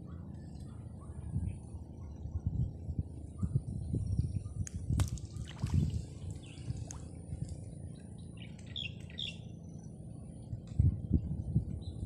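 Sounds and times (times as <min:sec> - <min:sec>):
low rumble on microphone: 0:00.0 - 0:12.0
small bird chirping: 0:08.3 - 0:09.9.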